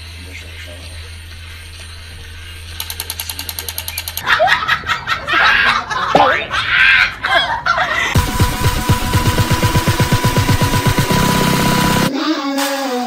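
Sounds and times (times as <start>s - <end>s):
toy motor humming: 2.5s - 4.2s
rapid rattling clicks: 2.8s - 4.2s
laughter: 4.2s - 8.2s.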